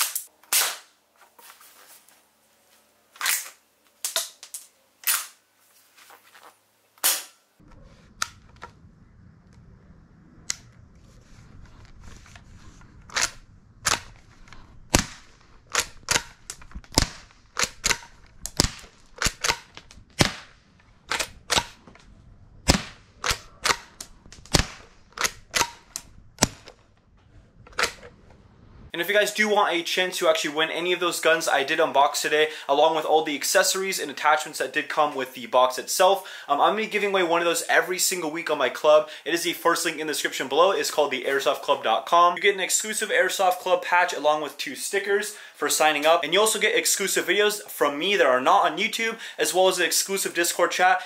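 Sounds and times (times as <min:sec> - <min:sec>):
low background rumble: 0:07.6 - 0:29.0
airsoft rifle lever clacks and shots: 0:13.0 - 0:20.5, 0:21.1 - 0:22.1, 0:22.7 - 0:26.9, 0:27.7 - 0:28.1.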